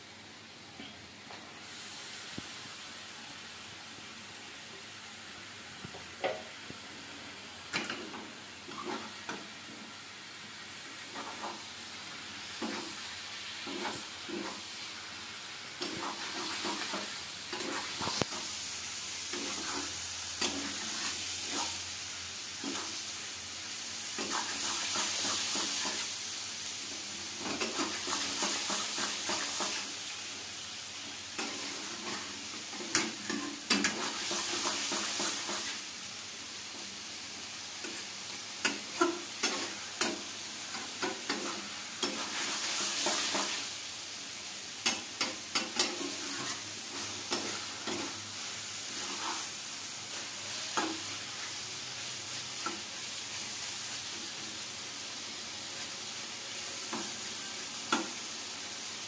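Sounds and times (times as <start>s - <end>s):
vegetables sizzling in a pan: 0.0s - 59.0s
spatula scraping a pan: 11.0s - 11.7s, 12.6s - 14.8s, 15.8s - 18.5s, 19.3s - 21.8s, 27.4s - 29.9s, 37.8s - 43.7s, 44.8s - 51.6s.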